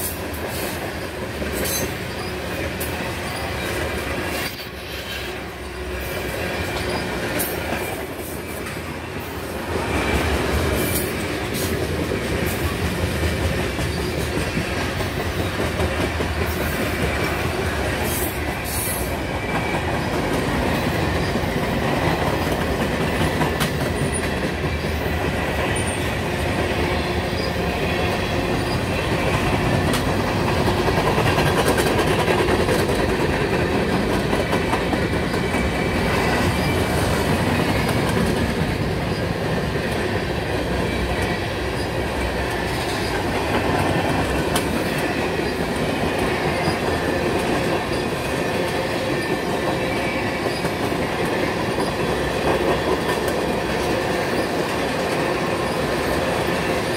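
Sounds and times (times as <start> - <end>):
train wheels rumbling on rail: 0.0 - 56.9
wheels clicking over rail joints: 9.8 - 26.0, 28.4 - 56.9.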